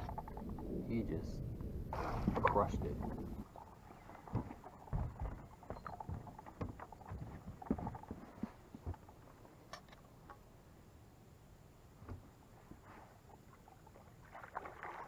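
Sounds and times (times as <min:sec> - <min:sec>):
knocks on aluminum boat deck: 0:04.3 - 0:05.4.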